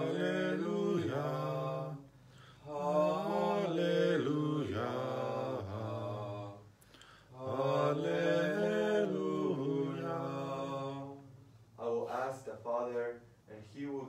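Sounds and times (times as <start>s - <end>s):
solo cantor chanting: 0.0s - 2.0s, 2.7s - 6.6s, 7.4s - 11.2s
singer breath: 2.1s - 2.7s, 6.7s - 7.4s.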